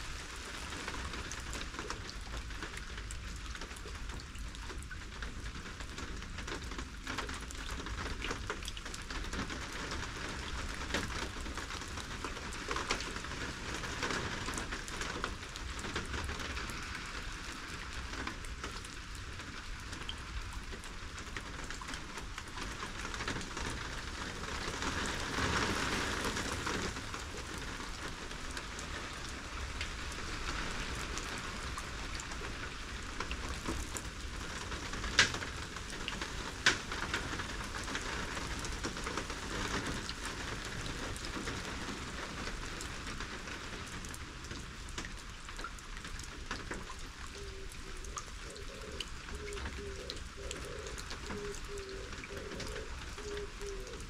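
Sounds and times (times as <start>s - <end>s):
steady rain hiss: 0.0s - 54.0s.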